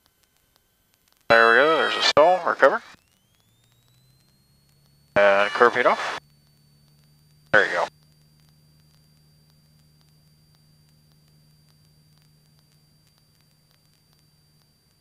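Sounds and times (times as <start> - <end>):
faint ticks: 0.0 - 1.3, 3.0 - 5.1, 6.2 - 15.0
intercom hum and hiss: 1.3 - 3.0, 5.2 - 6.2, 7.5 - 7.9.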